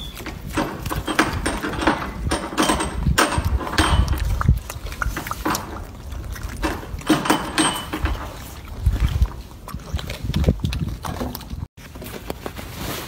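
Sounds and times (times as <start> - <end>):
monkey chewing wetly: 3.4 - 7.1, 8.2 - 11.7.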